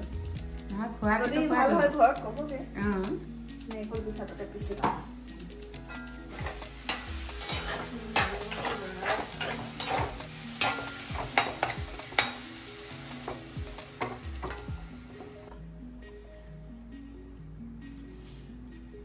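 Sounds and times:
spoon scraping and knocking pan: 0:05.8 - 0:15.4.

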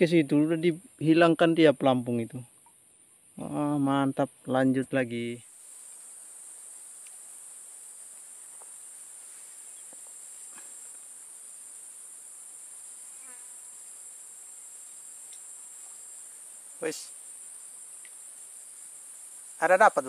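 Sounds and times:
faint insect trill: 0:00.0 - 0:20.0
high-pitched insect chorus: 0:00.0 - 0:20.0
faint ticks: 0:05.8 - 0:06.1, 0:06.9 - 0:07.2, 0:14.8 - 0:16.0, 0:17.9 - 0:18.3.

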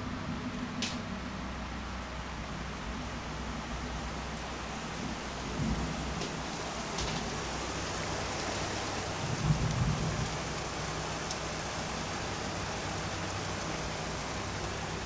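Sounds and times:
heavy rain falling: 0:03.3 - 0:15.0
low rumble of thunder: 0:05.0 - 0:07.5, 0:08.9 - 0:12.6.

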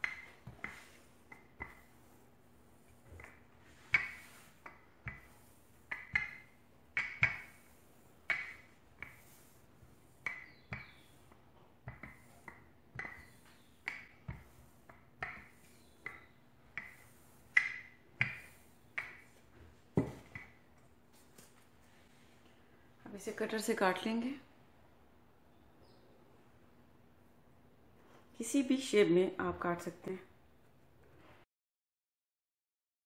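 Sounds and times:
rolling pin clacking on dough: 0:00.0 - 0:20.7.

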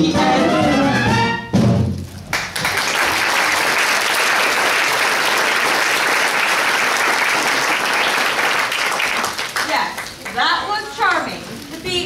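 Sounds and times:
audience applauding: 0:02.2 - 0:11.2.

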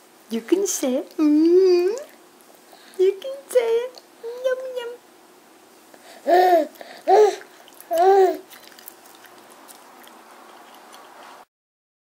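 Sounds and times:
baby cooing: 0:06.1 - 0:08.5.

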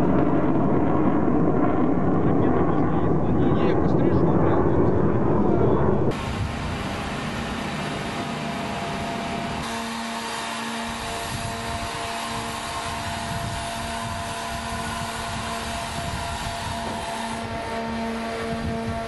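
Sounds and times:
heavy vehicle engine humming: 0:06.2 - 0:09.6.

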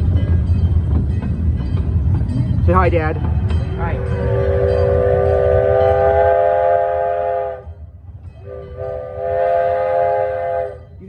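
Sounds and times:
train running rumble: 0:00.0 - 0:11.0
steam whistle blowing: 0:04.0 - 0:07.8, 0:08.4 - 0:10.9.

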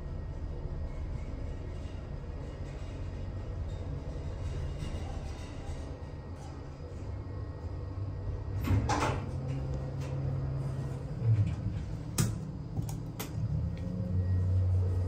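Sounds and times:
elevator doors sliding: 0:00.0 - 0:15.0
low steady hum: 0:06.4 - 0:15.0.

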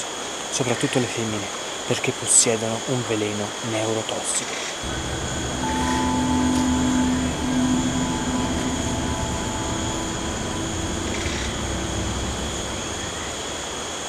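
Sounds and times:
crickets chirping: 0:04.5 - 0:14.0
low droning hum: 0:04.8 - 0:14.0.

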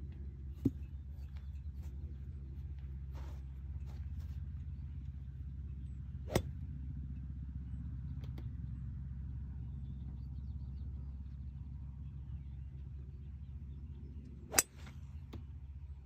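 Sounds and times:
golf club striking ball: 0:06.3 - 0:06.7, 0:14.5 - 0:15.5.

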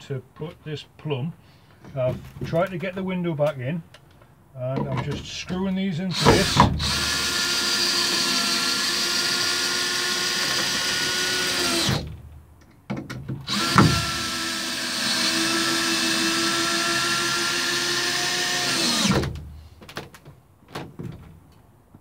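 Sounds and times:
drill clicks: 0:06.1 - 0:12.0, 0:13.4 - 0:19.4
cordless drill driving screws: 0:06.1 - 0:12.1, 0:13.4 - 0:19.4.

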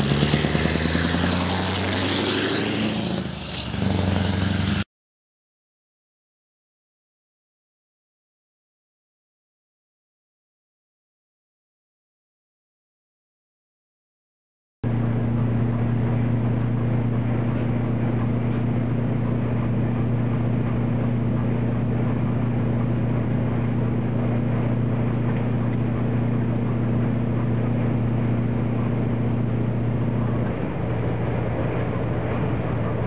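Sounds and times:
road noise: 0:00.0 - 0:04.9, 0:14.8 - 0:33.0
vehicle engine droning: 0:00.0 - 0:04.9, 0:14.8 - 0:33.0.

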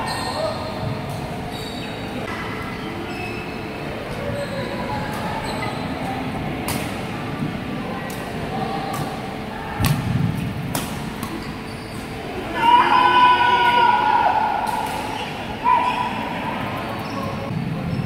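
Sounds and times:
busy sports hall background noise: 0:00.0 - 0:18.0
rackets striking shuttlecock: 0:06.6 - 0:07.0, 0:09.8 - 0:11.5.

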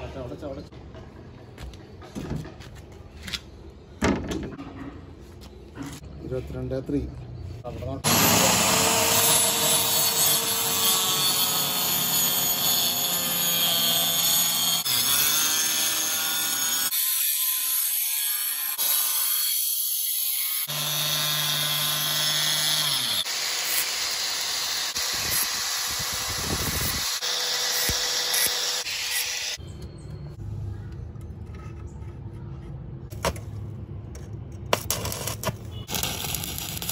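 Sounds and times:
circular saw cutting plywood: 0:08.0 - 0:29.6.

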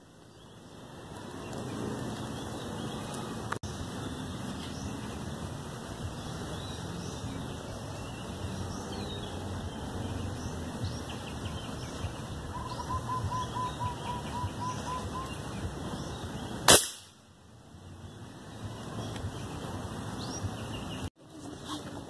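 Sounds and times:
bird calling: 0:11.3 - 0:16.5
air rifle shot: 0:16.7 - 0:17.2.

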